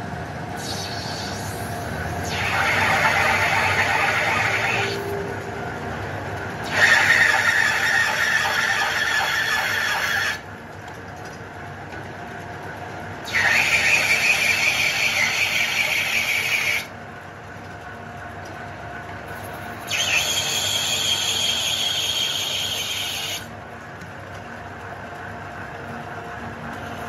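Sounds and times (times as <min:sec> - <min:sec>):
lathe running: 0:00.0 - 0:10.7, 0:12.7 - 0:17.0, 0:19.2 - 0:23.7
lathe tool scraping with squeal: 0:00.6 - 0:05.4, 0:06.6 - 0:10.4, 0:13.2 - 0:16.9, 0:19.4 - 0:23.5.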